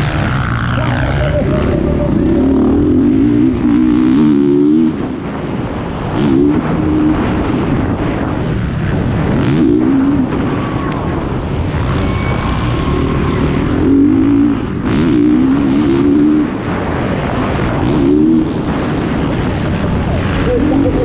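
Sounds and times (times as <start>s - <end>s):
motocross bike engine revving: 0.0s - 5.1s
wind on microphone: 0.0s - 21.0s.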